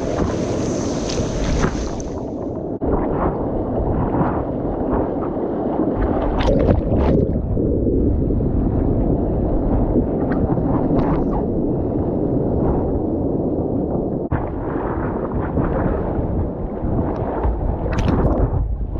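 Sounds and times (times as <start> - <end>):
sea water splashing: 0.0 - 11.5
wind rumble on microphone: 0.0 - 18.9.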